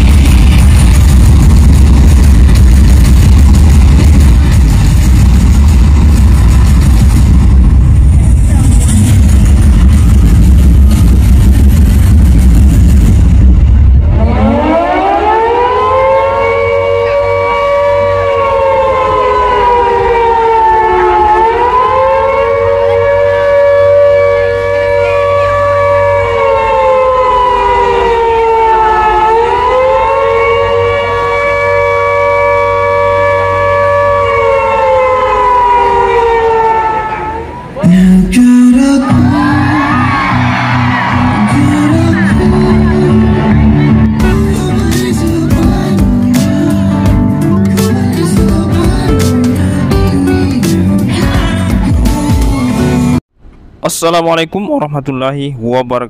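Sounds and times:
loud rumbling: 0:00.0 - 0:53.8
siren wailing: 0:13.5 - 0:37.9, 0:39.0 - 0:44.6.

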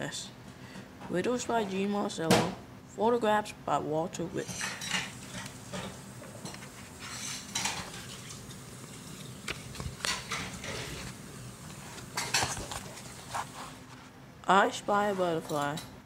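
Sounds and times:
book pages rustling: 0:06.5 - 0:14.1.

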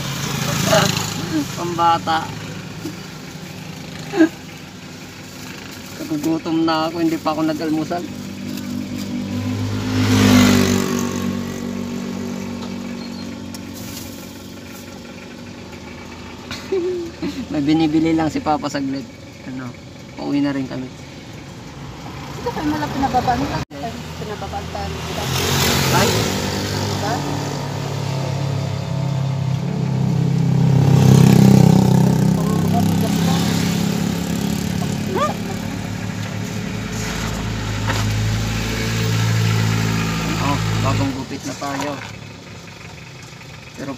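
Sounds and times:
vehicle engine heard from cabin: 0:10.8 - 0:21.8, 0:26.9 - 0:43.9.

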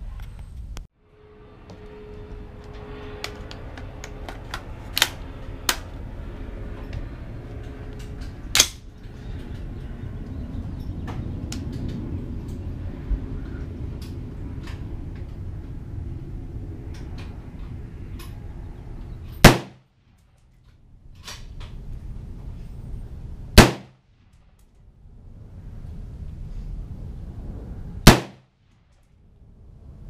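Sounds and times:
distant gunshots: 0:19.4 - 0:19.8, 0:23.6 - 0:24.0, 0:28.1 - 0:28.4
rifle shots: 0:19.4 - 0:19.8, 0:23.6 - 0:24.0, 0:28.1 - 0:28.4.

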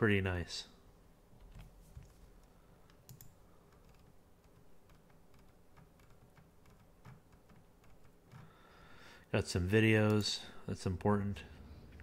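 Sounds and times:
computer mouse clicks: 0:01.4 - 0:08.5.

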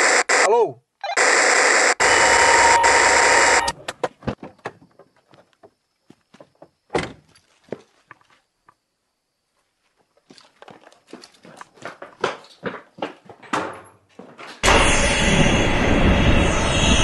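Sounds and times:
radio static hiss: 0:00.0 - 0:00.6, 0:01.2 - 0:03.7.

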